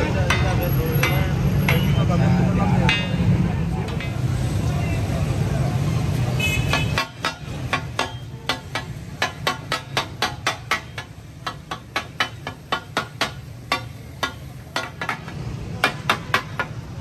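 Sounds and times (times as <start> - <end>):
metal spatula clacking on griddle: 0.0 - 2.0, 6.7 - 16.8.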